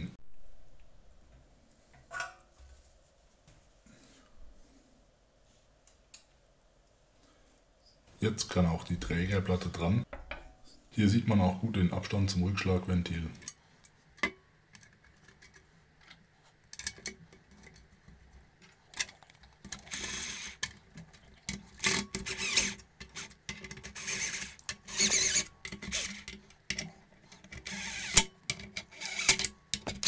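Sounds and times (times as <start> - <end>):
metal parts clicking and knocking: 14.2 - 17.9, 18.6 - 30.0
cordless drill bursts: 19.9 - 20.6, 21.8 - 23.3, 24.0 - 26.2, 27.6 - 28.3, 28.9 - 29.4.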